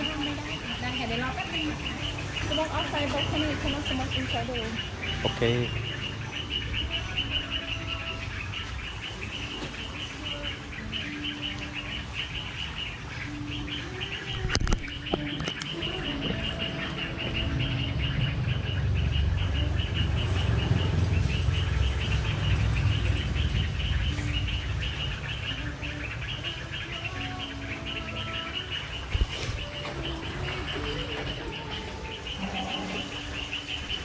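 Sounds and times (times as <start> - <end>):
small birds chirping: 0.0 - 34.0.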